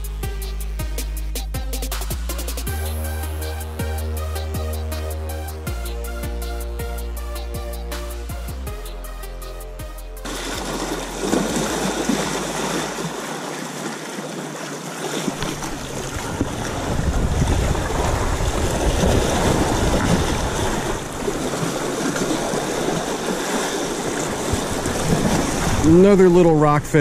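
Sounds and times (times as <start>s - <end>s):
surf washing against rocks: 10.2s - 27.0s.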